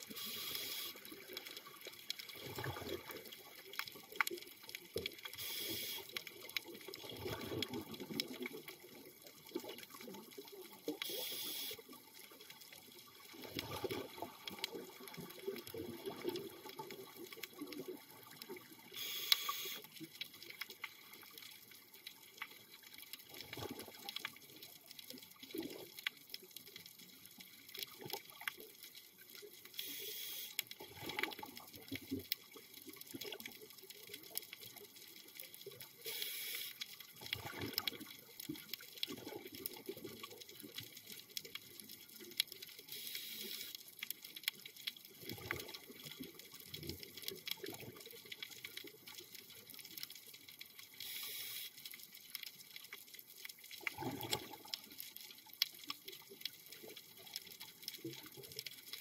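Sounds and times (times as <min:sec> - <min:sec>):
regulator hiss on inhale: 0:00.0 - 0:01.1, 0:05.4 - 0:06.1, 0:11.0 - 0:11.8, 0:19.0 - 0:19.9, 0:29.8 - 0:30.6, 0:36.0 - 0:36.9, 0:42.9 - 0:43.8, 0:51.0 - 0:51.8
exhaled air bubbling: 0:00.0 - 0:04.2, 0:05.0 - 0:11.6, 0:13.1 - 0:19.8, 0:23.2 - 0:24.3, 0:30.8 - 0:32.2, 0:37.2 - 0:41.5, 0:45.1 - 0:49.5, 0:53.8 - 0:55.0.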